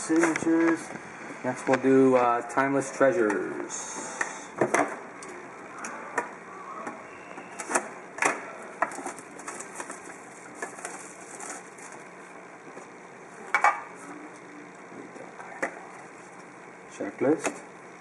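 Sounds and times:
plastic wrap crinkling and tearing: 8.9 - 12.1.

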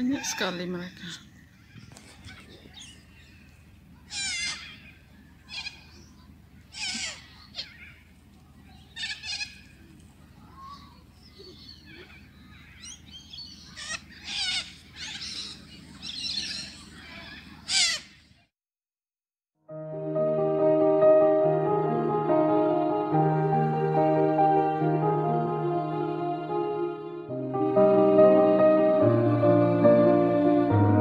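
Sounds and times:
cockatoos screeching: 4.0 - 6.0, 6.7 - 8.0, 12.7 - 18.2.

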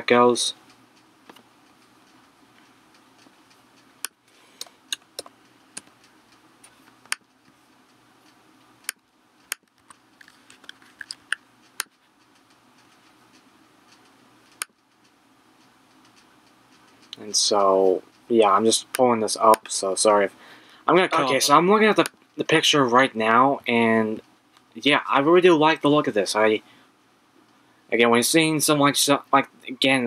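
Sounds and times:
faint room hum: 0.0 - 30.0
mouse and keyboard clicks: 8.8 - 14.8.

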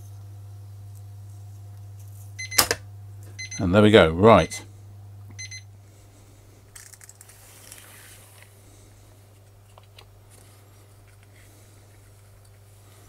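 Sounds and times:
low electrical hum: 0.0 - 13.0
tape rustling and clicking: 6.8 - 8.5.

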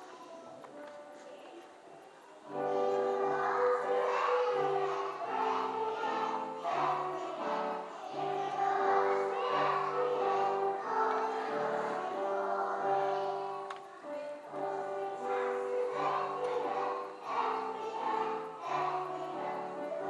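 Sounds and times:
children singing a carol: 2.4 - 20.0.

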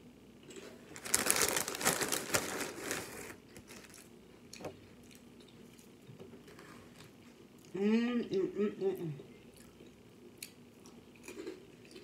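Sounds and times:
crackers crunching: 0.5 - 6.0
plastic bag rustling: 0.8 - 4.1.

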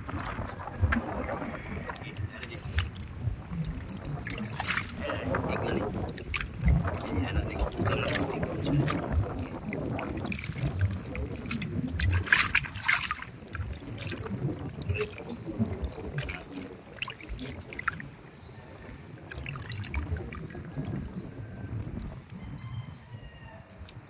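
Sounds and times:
water splashing in a basin: 0.0 - 22.4.

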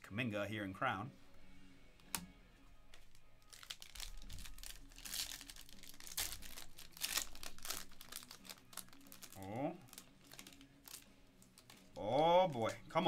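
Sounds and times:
foil wrapper crinkling: 2.9 - 13.0.

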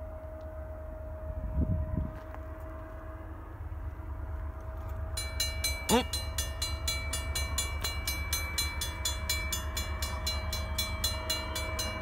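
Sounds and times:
low steady rumble: 0.0 - 12.0
crossing warning bell ringing: 5.0 - 12.0.

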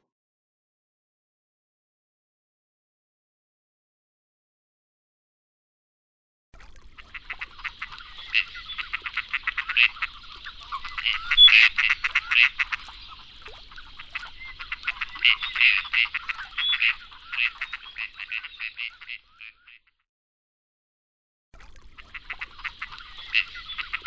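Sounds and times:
ducks quacking and croaking: 6.9 - 20.0, 21.9 - 24.0.

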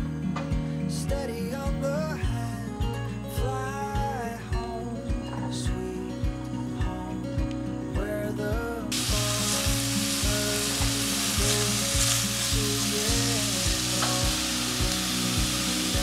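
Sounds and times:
background music with steady beat: 0.0 - 16.0
onions sizzling in hot oil: 8.9 - 16.0.

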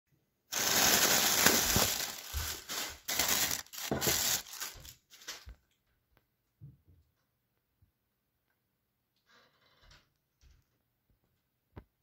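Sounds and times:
plastic packing crinkling: 0.5 - 5.5.

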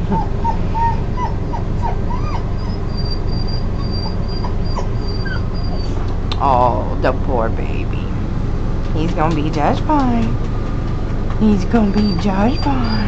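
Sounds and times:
dog whimpering: 0.0 - 6.1, 11.9 - 13.0.

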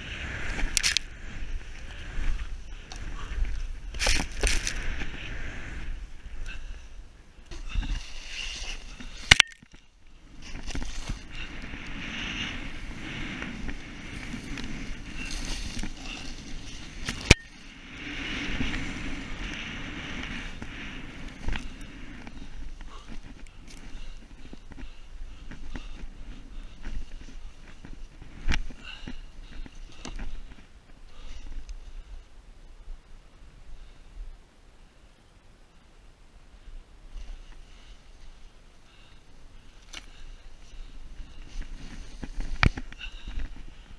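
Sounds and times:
snow swishing under skis: 0.0 - 6.3, 7.7 - 9.3, 10.1 - 29.7, 40.2 - 43.7.

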